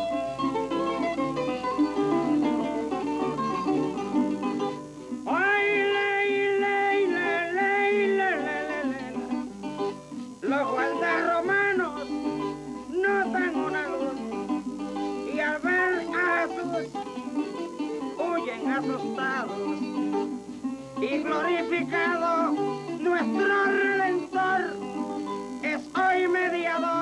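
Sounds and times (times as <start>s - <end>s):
plucked strings and guitar: 0.0s - 27.0s
person singing long notes: 5.2s - 9.5s, 10.4s - 20.1s, 20.9s - 25.0s, 25.6s - 27.0s.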